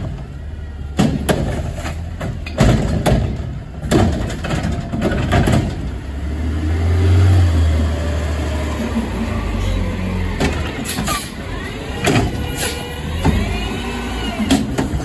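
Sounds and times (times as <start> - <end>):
diesel engine revving: 0.0 - 15.0.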